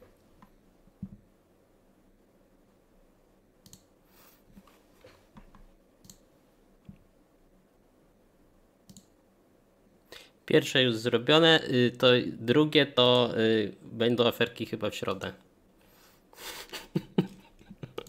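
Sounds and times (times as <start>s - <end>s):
faint computer mouse clicks: 3.6s - 3.9s, 8.9s - 9.1s.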